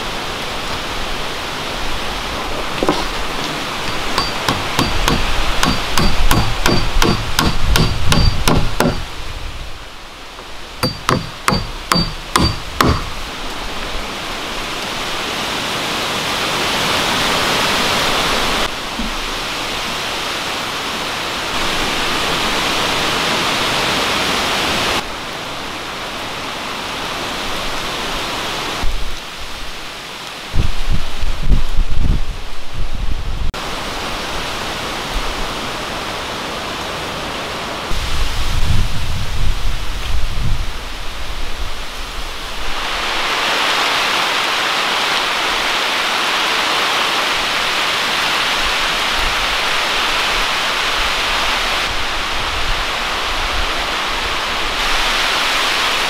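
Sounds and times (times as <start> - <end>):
rain falling on forest: 0.0 - 56.0
hammer striking metal: 3.9 - 9.1, 10.8 - 13.2.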